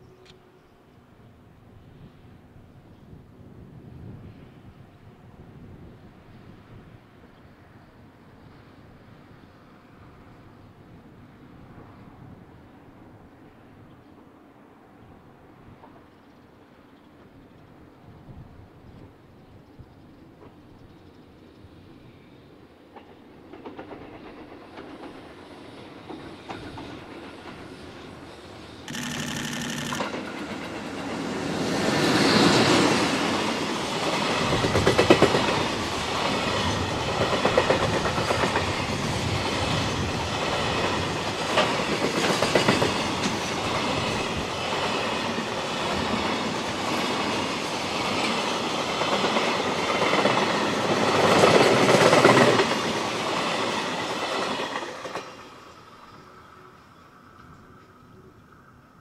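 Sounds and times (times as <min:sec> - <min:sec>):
electric locomotive passing: 0:00.0 - 0:59.0
wheels clacking over rail joints: 0:28.9 - 0:31.4.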